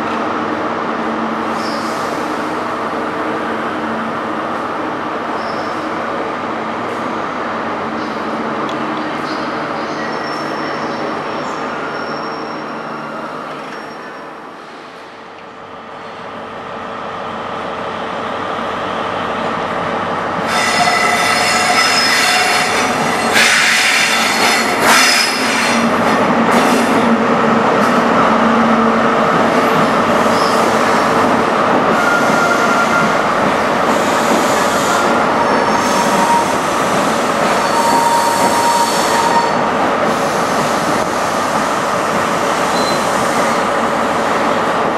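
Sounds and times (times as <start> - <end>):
train diesel engine passing: 0.0 - 44.9
train wheels squealing on track: 1.5 - 2.4, 5.3 - 5.9, 9.1 - 14.4, 20.4 - 25.9, 30.2 - 31.2, 31.9 - 33.3, 33.9 - 41.4, 42.6 - 43.6.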